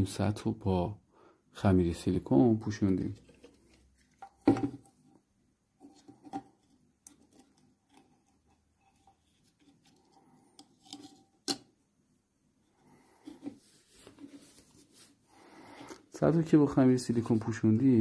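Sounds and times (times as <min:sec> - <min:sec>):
soft rubbing: 0:12.6 - 0:16.1.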